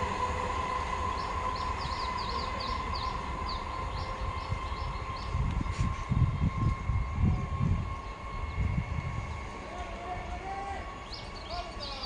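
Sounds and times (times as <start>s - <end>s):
train rumble with whine: 0.0s - 12.0s
bird chirping: 11.0s - 12.0s.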